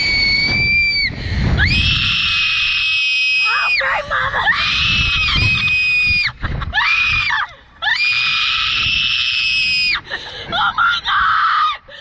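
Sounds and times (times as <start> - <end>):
girl screaming: 1.6 - 9.7.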